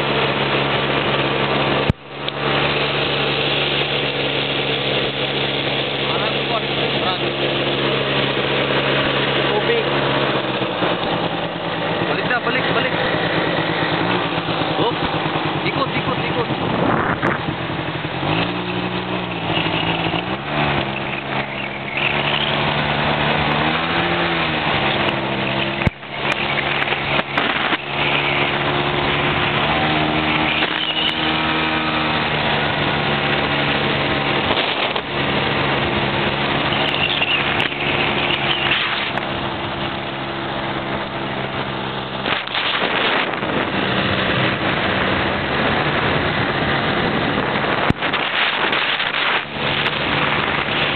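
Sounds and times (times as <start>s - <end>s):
atv engine revving: 0.0s - 50.9s.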